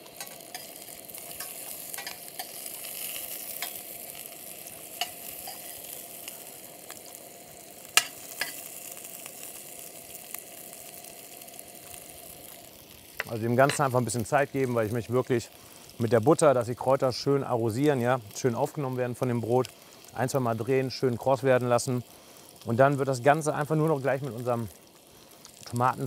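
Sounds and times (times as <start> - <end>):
food sizzling in a pan: 0.0 - 26.0
metal spoon clinking on pan: 1.4 - 2.6, 5.0 - 5.7.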